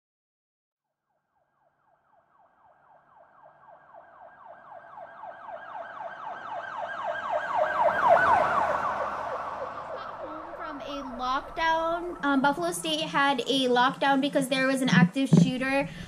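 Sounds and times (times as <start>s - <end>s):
emergency siren yelping: 2.2s - 12.3s.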